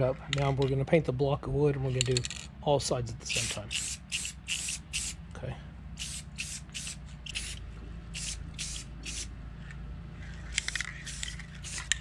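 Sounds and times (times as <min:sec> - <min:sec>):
spray paint can hissing: 0:03.3 - 0:05.2, 0:06.0 - 0:09.3, 0:10.5 - 0:12.0.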